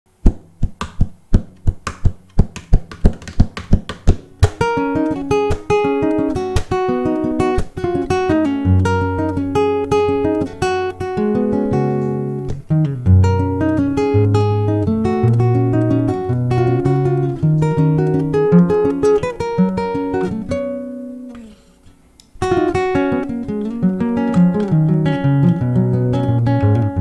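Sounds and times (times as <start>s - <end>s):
plucked classical guitar melody: 1.4s - 27.0s
muted percussive guitar strokes: 11.3s - 22.7s.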